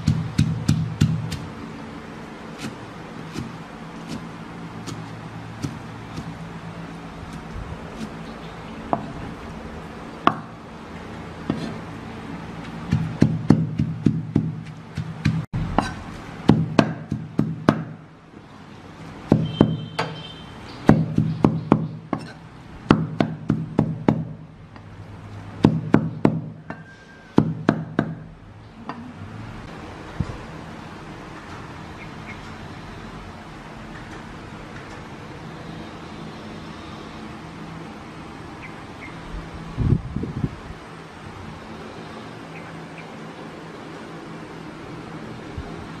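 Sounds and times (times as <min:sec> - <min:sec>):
cleaver chopping on wooden board: 0:00.0 - 0:01.5, 0:02.6 - 0:06.4, 0:11.5 - 0:11.8, 0:12.6 - 0:18.0, 0:20.8 - 0:24.4.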